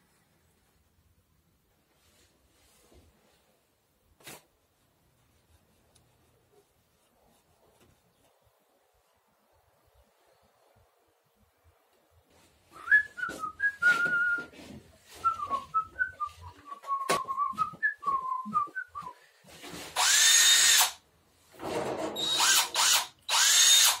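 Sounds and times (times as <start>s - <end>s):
person whistling a tune: 12.8s - 14.5s, 15.2s - 19.2s
power drill whining: 19.9s - 21.0s, 22.2s - 24.0s.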